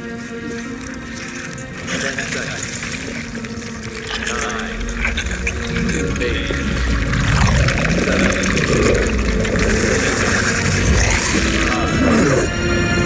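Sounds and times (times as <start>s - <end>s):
liquid sound effects: 1.9s - 12.5s
heavy low rumble: 3.9s - 13.0s.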